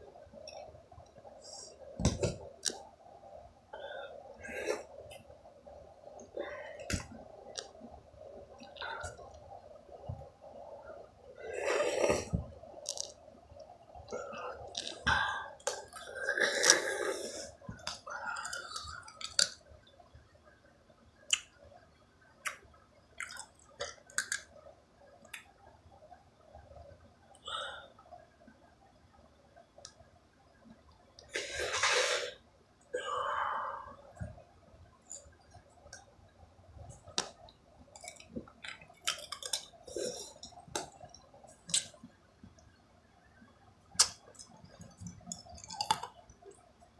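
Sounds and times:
person chewing with crunching clicks: 12.8 - 13.2, 14.6 - 16.8, 17.8 - 19.6, 23.2 - 24.5, 36.9 - 42.1, 44.0 - 46.6.

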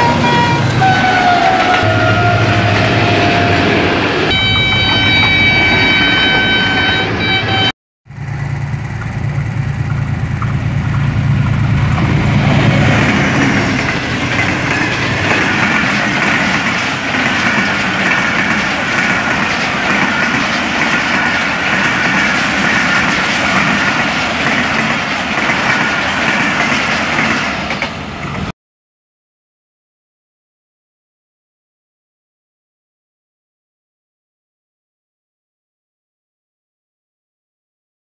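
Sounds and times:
diesel locomotive engine drone: 0.0 - 28.5
train wheels clattering on rails: 8.7 - 28.5.

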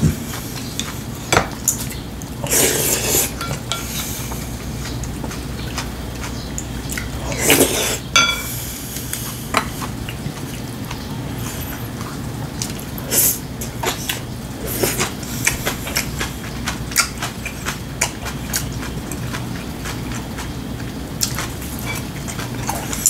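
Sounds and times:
eating noise: 0.0 - 23.0
chopsticks tapping on ceramic bowls: 8.2 - 8.5.

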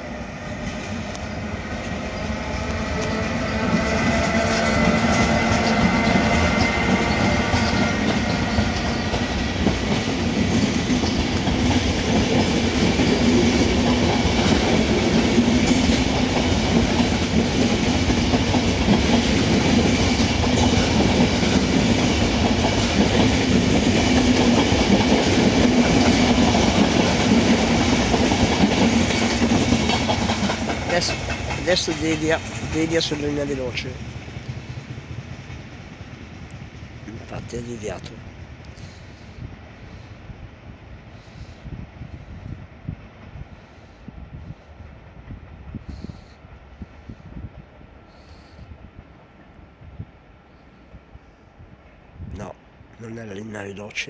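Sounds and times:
train wheels clattering on rails: 0.0 - 38.1.

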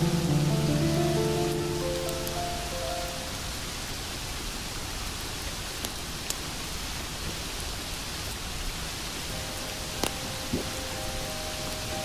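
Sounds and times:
waterfall splashing onto rocks: 0.0 - 12.0.

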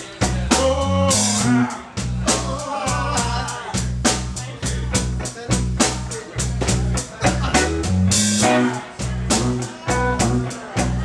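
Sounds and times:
drum kit steady beat: 0.0 - 11.0
electric bass: 0.0 - 11.0
electric guitars: 6.9 - 11.0.

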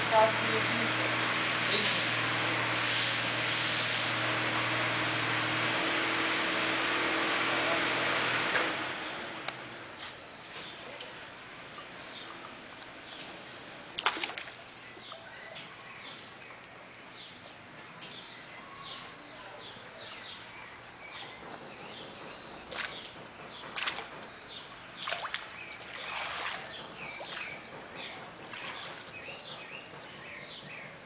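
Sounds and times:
small birds chirping: 8.9 - 13.6, 14.6 - 31.0.

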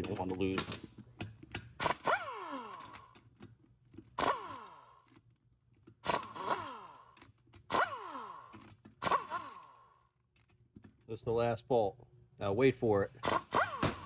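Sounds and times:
air ratchet bursts: 1.8 - 3.2, 4.2 - 5.0, 6.0 - 9.9, 13.2 - 14.0.

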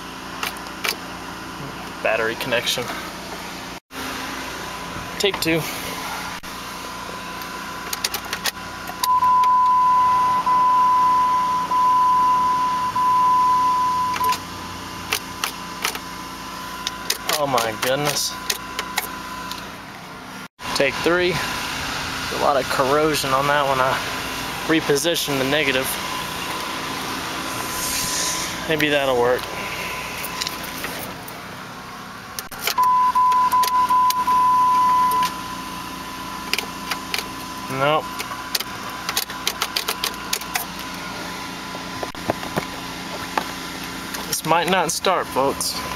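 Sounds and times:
dashboard warning beep: 9.0 - 14.4, 32.7 - 35.6, 37.7 - 38.4.

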